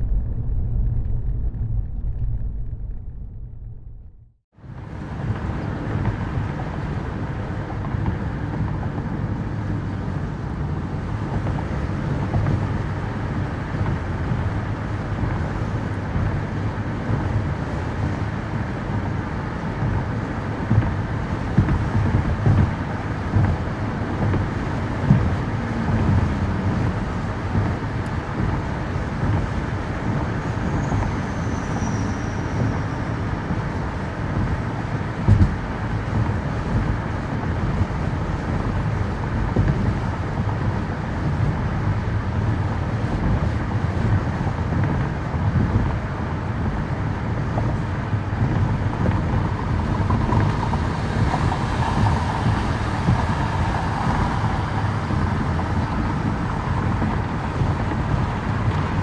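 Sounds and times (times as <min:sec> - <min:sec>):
road rumble with tyre noise: 0:00.0 - 0:59.0.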